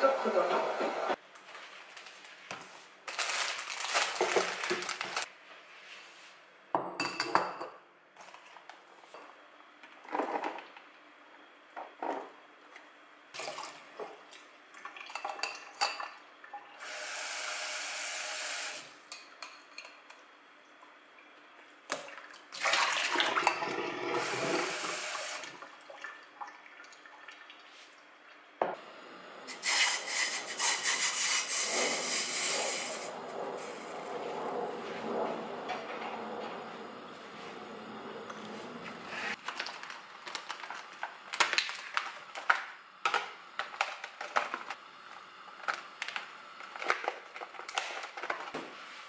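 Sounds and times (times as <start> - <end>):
tap water running: 16.8 - 18.9, 21.9 - 27.6, 29.5 - 33.9.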